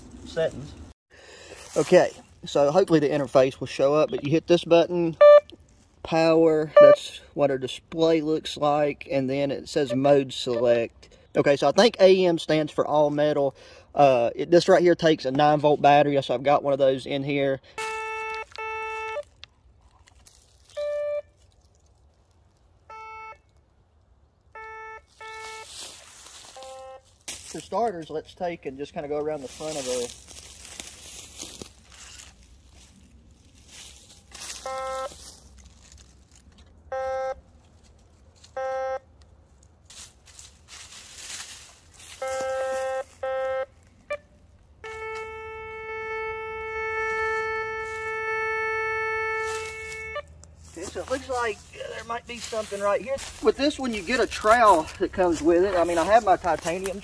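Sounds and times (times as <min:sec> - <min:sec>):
dry leaves rustling: 0:00.0 - 0:03.8, 0:17.8 - 0:24.5, 0:25.1 - 0:28.2, 0:28.8 - 0:36.8, 0:37.4 - 0:45.3, 0:47.0 - 0:48.2, 0:49.4 - 0:57.0
metal detector beeps: 0:05.2 - 0:05.6, 0:06.7 - 0:07.1, 0:17.8 - 0:19.2, 0:20.7 - 0:21.3, 0:22.9 - 0:23.4, 0:24.6 - 0:25.8, 0:26.5 - 0:27.0, 0:34.6 - 0:35.2, 0:36.9 - 0:37.4, 0:38.6 - 0:39.0, 0:42.2 - 0:43.7, 0:44.8 - 0:48.0
metal detector held tone: 0:06.8 - 0:07.0, 0:26.5 - 0:27.0, 0:34.5 - 0:35.2, 0:42.2 - 0:43.7.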